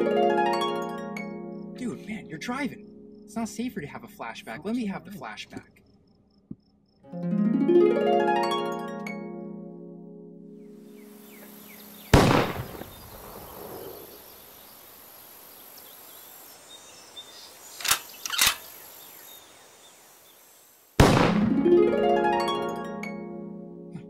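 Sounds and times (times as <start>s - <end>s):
plucked harp-like music: 0.0s - 2.4s, 7.1s - 11.6s, 21.4s - 24.0s
faint bird chirps: 10.9s - 20.6s
gunshot: 12.2s - 13.9s, 21.0s - 21.6s
sharp clicks: 17.8s - 18.6s.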